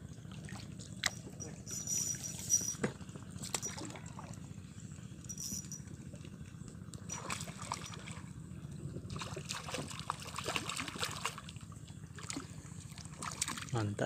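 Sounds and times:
fish thrashing and splashing: 3.4s - 4.4s, 7.1s - 8.3s, 9.1s - 13.8s.

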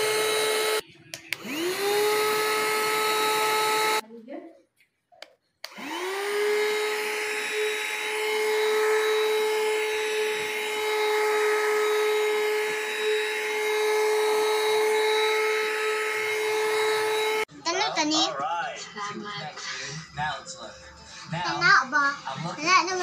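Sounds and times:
handheld vacuum cleaner whining: 0.0s - 4.0s, 5.6s - 17.5s.

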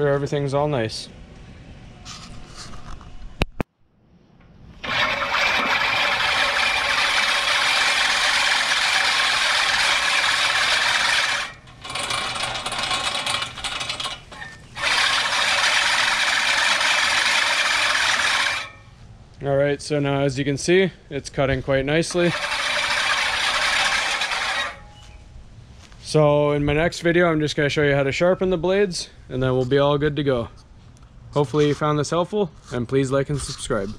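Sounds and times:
reel lawnmower blades whirring: 4.7s - 19.0s, 21.3s - 25.2s.

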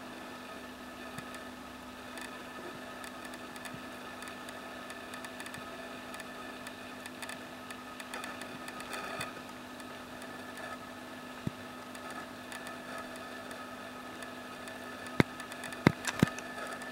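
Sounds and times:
machine hum: 0.0s - 16.9s
sharp clicks: 14.2s - 16.9s.

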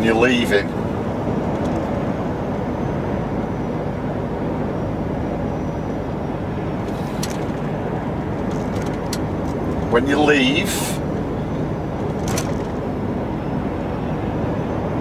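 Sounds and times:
lorry engine and road rumble: 0.0s - 15.0s.

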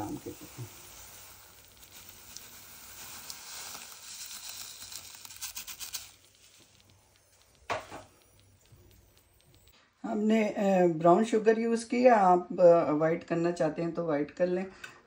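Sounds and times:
sugar sizzling in hot oil: 0.0s - 9.8s.

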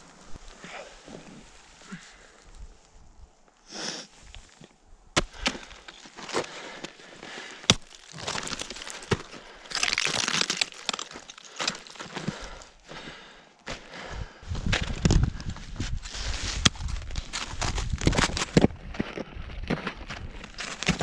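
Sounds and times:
snow crunching and scraping: 0.0s - 3.1s, 5.3s - 12.7s, 14.5s - 21.0s
ice axe striking frozen snow: 5.2s - 6.5s, 7.5s - 12.5s, 20.5s - 21.0s.

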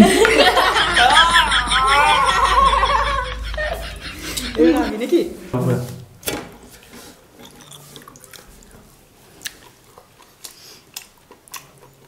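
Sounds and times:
person chewing food: 7.2s - 12.0s.

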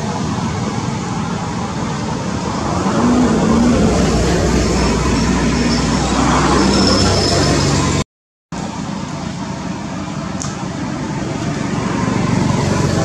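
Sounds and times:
outdoor background noise: 0.0s - 13.0s
faint high tone: 2.4s - 7.0s
short high squeak: 2.5s - 8.0s.

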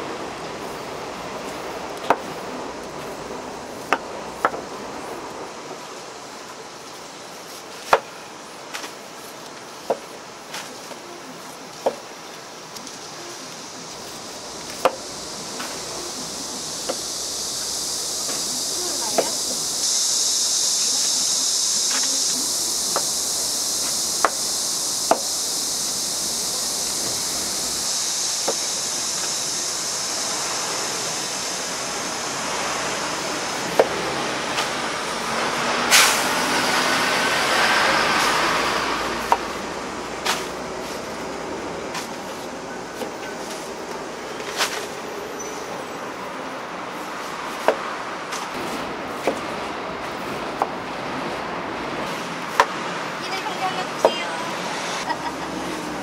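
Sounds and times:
broad rushing noise: 0.0s - 56.0s
steady high hiss: 0.0s - 56.0s.

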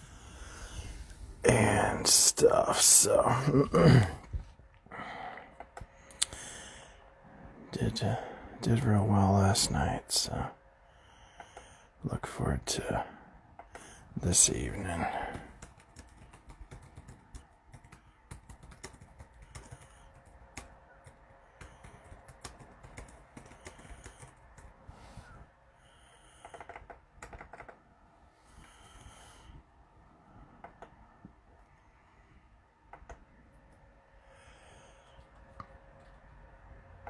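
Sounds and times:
faint keyboard typing: 13.6s - 25.5s, 26.1s - 28.0s, 30.4s - 31.8s, 32.9s - 33.8s, 34.8s - 36.5s.

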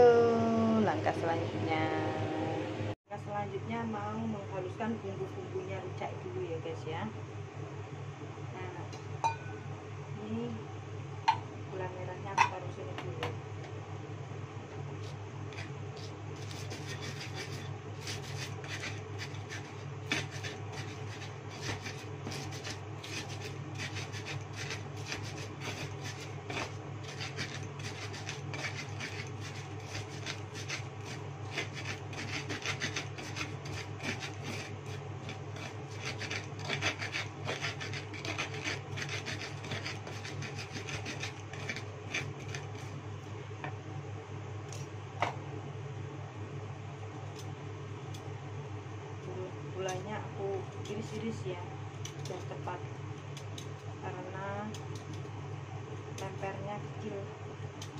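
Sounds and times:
steady low hum: 0.0s - 57.9s
pestle grinding in mortar: 15.5s - 42.9s.

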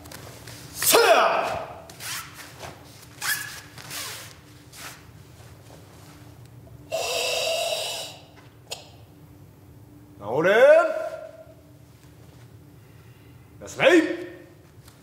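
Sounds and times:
person forcefully exhaling: 6.9s - 8.3s.

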